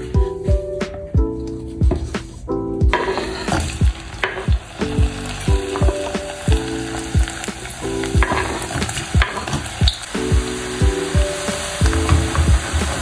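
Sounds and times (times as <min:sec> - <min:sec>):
background music with steady beat: 0:00.0 - 0:13.0
food sizzling in hot oil: 0:02.9 - 0:13.0.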